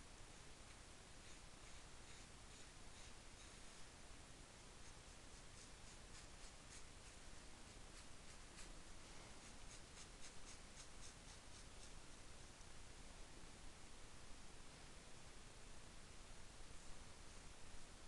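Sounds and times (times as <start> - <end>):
scratching on fabric: 1.2 - 3.8, 4.8 - 12.0.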